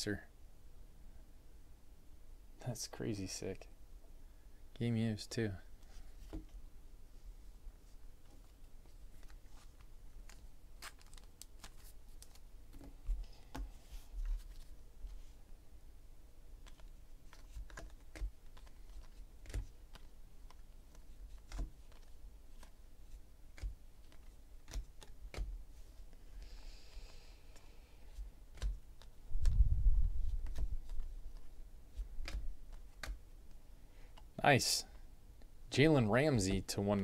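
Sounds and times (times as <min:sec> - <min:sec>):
trading cards clicking and tapping: 0:16.6 - 0:22.8, 0:23.5 - 0:25.6, 0:32.2 - 0:33.2.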